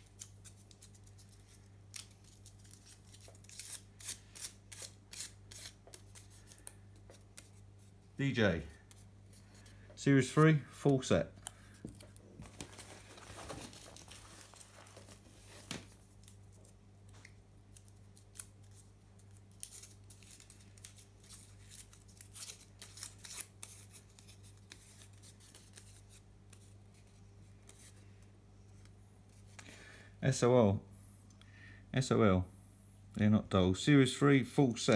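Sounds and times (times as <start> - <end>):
paper crinkling and rustling: 0.0 - 7.6, 11.7 - 16.8, 17.7 - 27.9.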